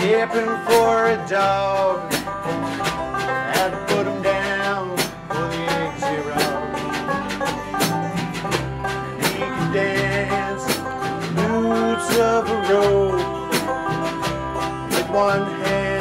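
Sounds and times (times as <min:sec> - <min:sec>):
bluegrass band playing: 0:00.0 - 0:16.0.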